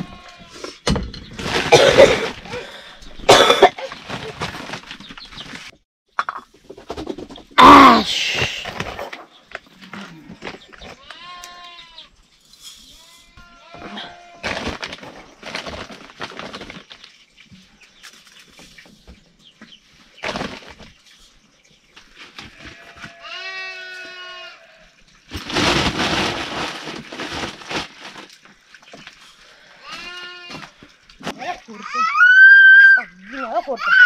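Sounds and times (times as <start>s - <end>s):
knocks and rustles: 0.0s - 2.6s, 3.2s - 7.6s, 12.6s - 21.3s.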